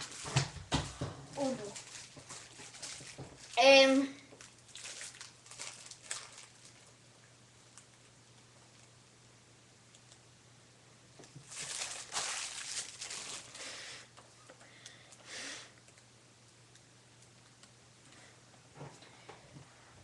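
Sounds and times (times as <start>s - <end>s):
rustling and handling noise: 0.0s - 7.0s, 11.2s - 16.1s.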